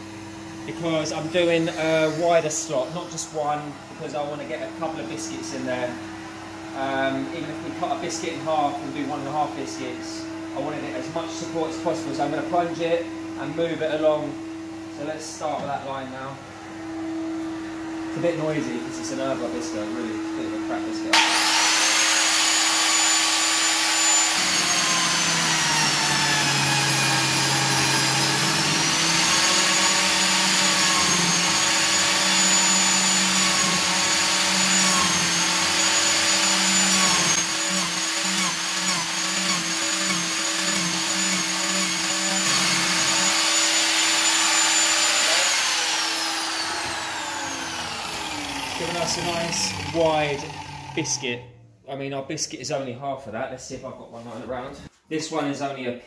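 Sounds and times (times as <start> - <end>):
biscuit jointer whining: 0.0 - 3.4, 21.1 - 51.3
workshop vacuum humming: 0.0 - 51.3.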